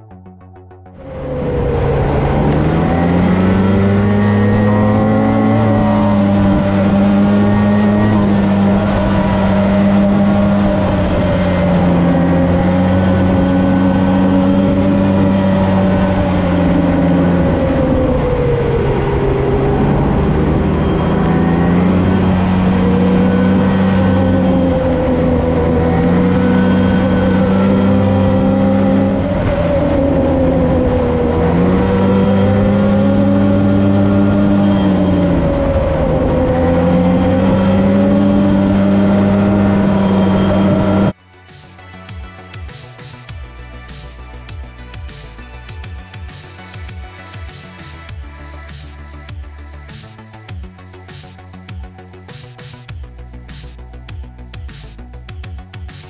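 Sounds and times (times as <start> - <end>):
snowmobile engine running: 0.0 - 41.2.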